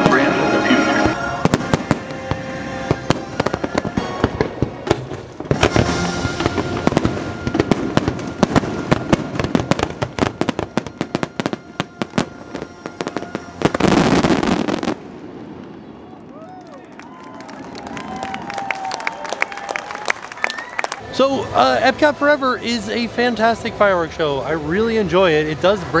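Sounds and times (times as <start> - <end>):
music: 0.0 - 14.9, 21.0 - 26.0
fireworks bangs and crackling: 0.0 - 16.6.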